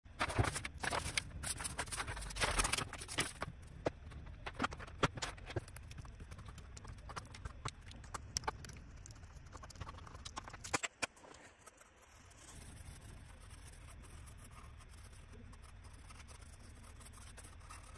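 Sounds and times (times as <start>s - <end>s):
paper rustling: 0.2s - 5.7s.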